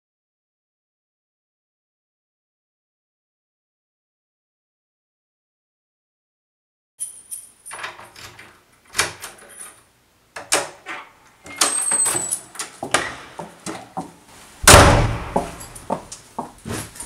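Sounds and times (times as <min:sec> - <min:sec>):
keys jangling: 0:07.0 - 0:08.4, 0:11.5 - 0:12.8, 0:15.5 - 0:16.0
door squeak: 0:10.9 - 0:13.2
door shutting thud: 0:14.6 - 0:15.9.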